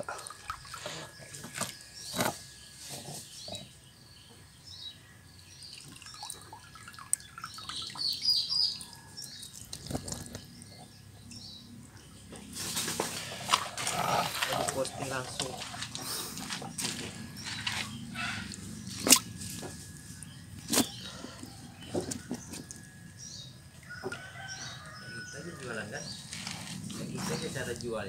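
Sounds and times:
water splashing and dripping: 0:00.0 - 0:00.9, 0:05.7 - 0:10.4
small birds chirping: 0:00.0 - 0:28.0.

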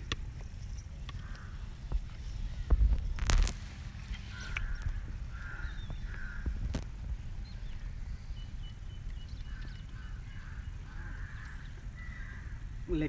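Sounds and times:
steady low rumble: 0:00.0 - 0:13.0
crows cawing: 0:01.1 - 0:01.7, 0:04.2 - 0:06.8, 0:09.4 - 0:12.8.

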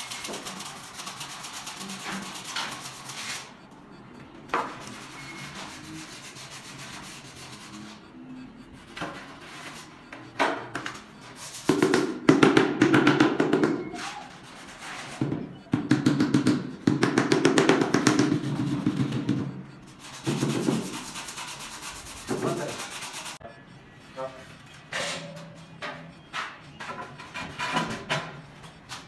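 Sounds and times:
scraping on tile: 0:00.0 - 0:03.6, 0:13.4 - 0:15.4, 0:17.6 - 0:23.4.

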